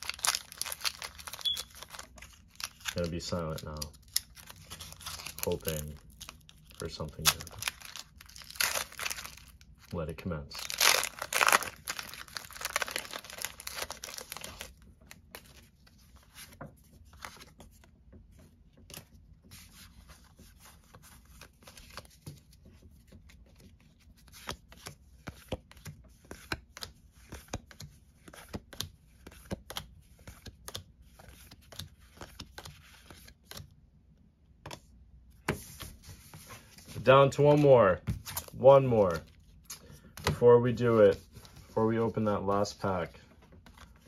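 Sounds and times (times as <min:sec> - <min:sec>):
foil wrapper crinkling: 0:00.0 - 0:09.9, 0:10.6 - 0:14.7.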